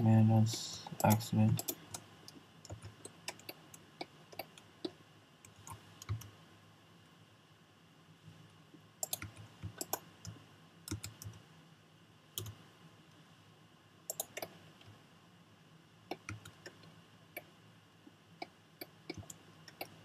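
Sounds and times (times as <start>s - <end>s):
mouse and keyboard clicks: 14.1s - 14.6s.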